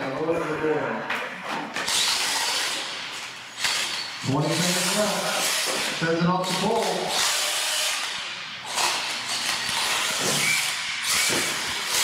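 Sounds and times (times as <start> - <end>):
toy truck motor whirring: 1.8 - 6.0, 7.1 - 12.0.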